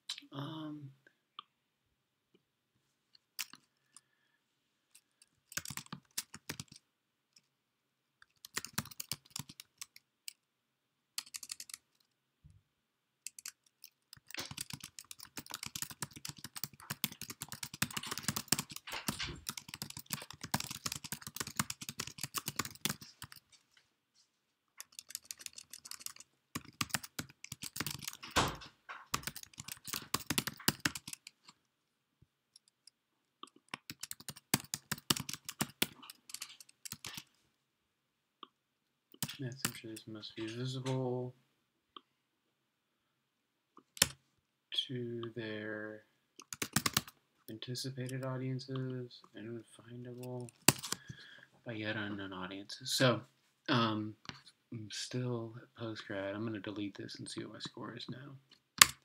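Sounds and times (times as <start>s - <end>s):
computer keyboard typing: 3.4s - 3.7s, 5.2s - 6.8s, 8.2s - 10.0s, 11.2s - 12.0s, 13.3s - 23.5s, 24.8s - 31.4s, 32.6s - 37.3s, 39.2s - 39.8s, 43.8s - 44.2s, 46.4s - 47.1s, 50.2s - 51.1s.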